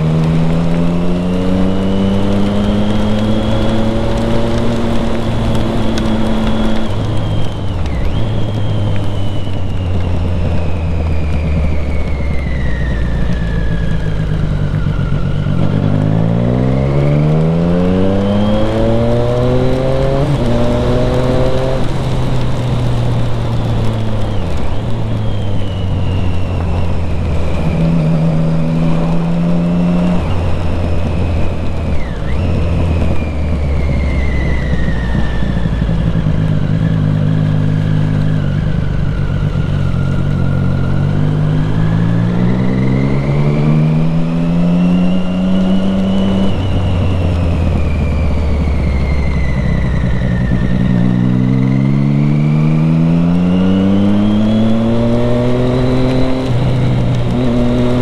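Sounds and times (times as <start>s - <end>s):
motorcycle engine accelerating: 0.0s - 58.0s
tyres on wet road: 0.0s - 58.0s.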